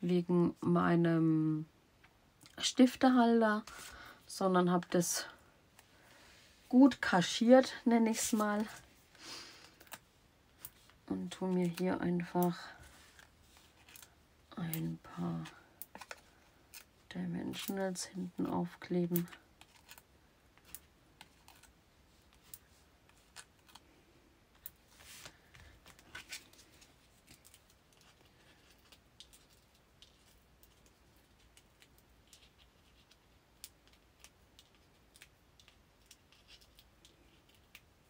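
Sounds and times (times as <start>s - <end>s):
paper rustling: 24.9s - 37.7s.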